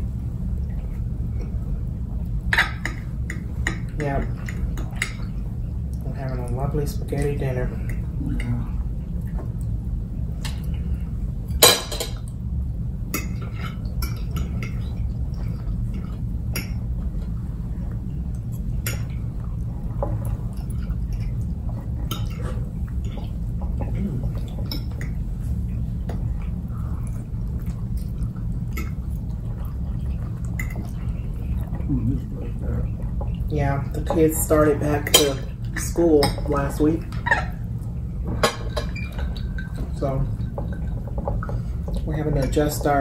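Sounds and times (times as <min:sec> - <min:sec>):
low hum: 0:00.0 - 0:43.0.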